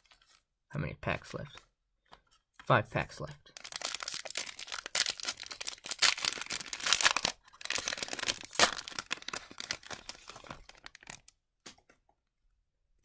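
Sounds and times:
plastic wrapper tearing and crinkling: 3.6 - 11.3.

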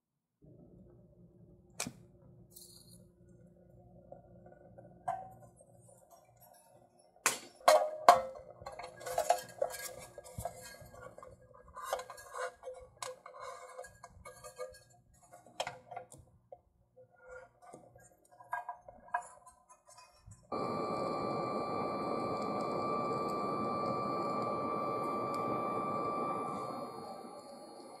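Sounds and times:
stove fan humming with whine: 20.4 - 28.0.

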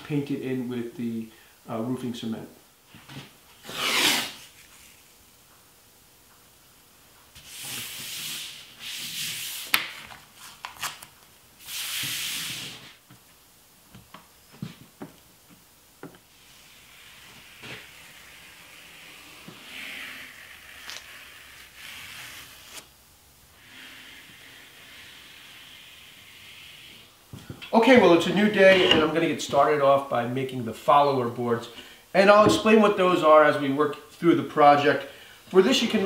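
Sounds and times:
tape peeling off: 3.6 - 5.0, 16.3 - 22.9.

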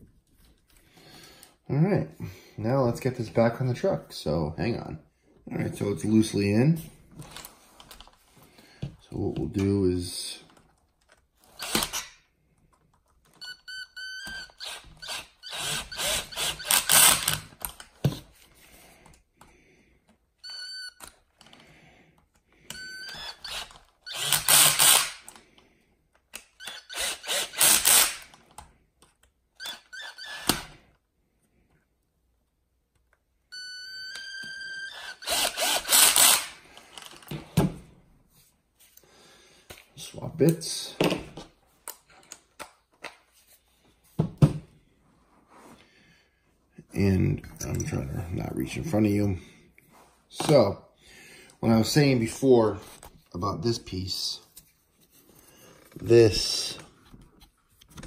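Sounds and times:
electric screwdriver motor whine: 14.2 - 17.4, 22.7 - 25.3, 26.6 - 28.3, 29.6 - 30.7, 34.1 - 36.6
screwdriver rattle: 14.2 - 18.0, 22.7 - 25.4, 26.2 - 28.6, 34.2 - 37.4.

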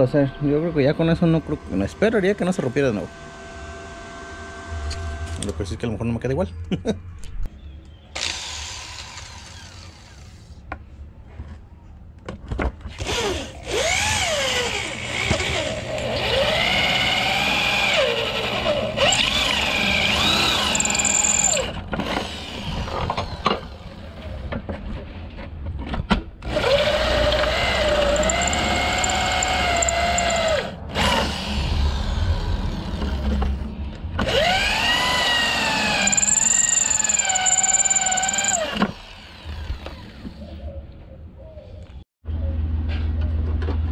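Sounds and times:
electric drill whining: 8.2 - 10.6, 13.0 - 23.7, 26.4 - 32.1, 34.2 - 40.4.

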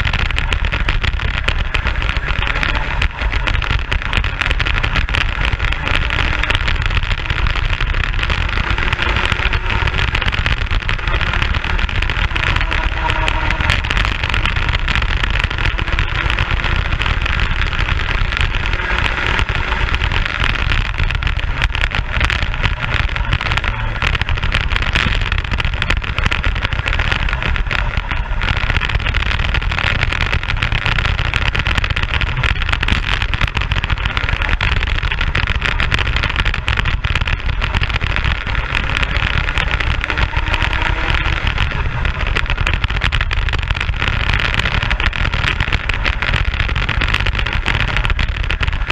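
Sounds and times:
kart engine running hard: 0.0 - 48.9.

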